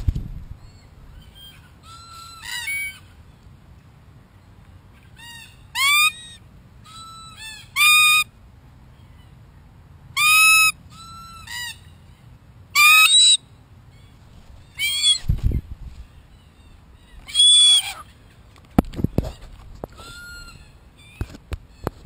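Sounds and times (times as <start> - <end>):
soft cockatoo calls: 0.7 - 3.1, 5.0 - 8.3, 10.2 - 12.2, 14.6 - 15.2, 16.1 - 18.4, 19.2 - 22.0
cockatoos calling harshly: 5.0 - 8.3, 10.2 - 12.1, 14.5 - 15.3, 16.4 - 18.5.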